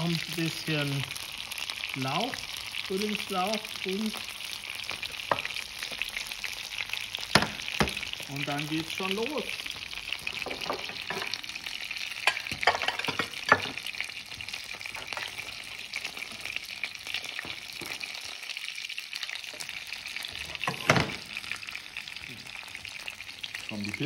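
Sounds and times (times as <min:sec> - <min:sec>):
mushrooms sizzling in frying pan: 0:00.0 - 0:24.0.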